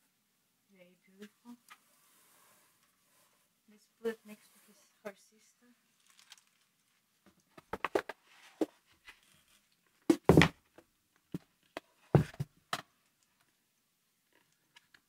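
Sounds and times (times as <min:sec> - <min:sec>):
heavy thump on table: 0:10.1 - 0:10.5.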